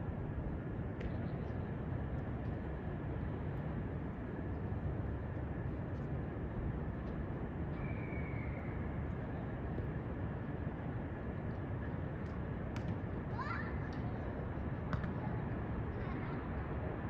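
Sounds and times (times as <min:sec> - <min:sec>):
distant city and rail traffic rumble: 0:00.0 - 0:17.0
faint high whine: 0:06.4 - 0:11.0.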